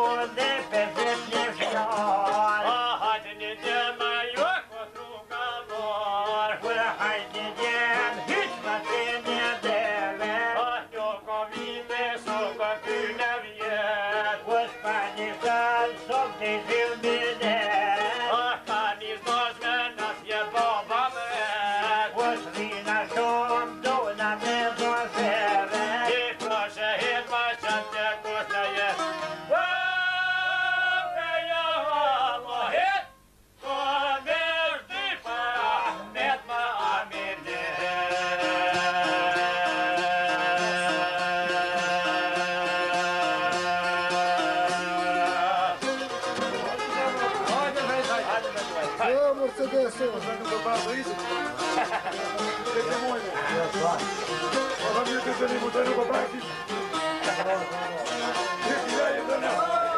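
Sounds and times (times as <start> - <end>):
plucked lute: 0.0 - 29.6, 35.0 - 59.9
man singing: 0.0 - 52.8, 54.7 - 56.6, 57.2 - 59.9
violin: 36.8 - 59.9.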